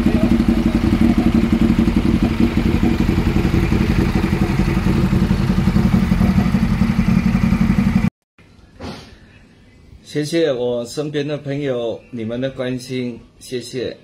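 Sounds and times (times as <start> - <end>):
vehicle engine idling: 0.0 - 8.1.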